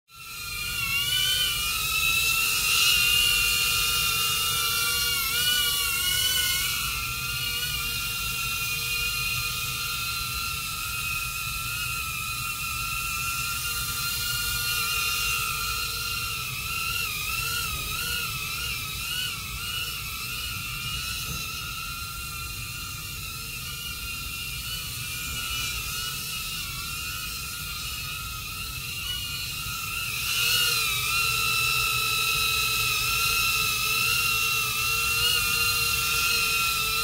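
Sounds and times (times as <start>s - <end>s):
drone propellers whining: 0.1s - 37.0s.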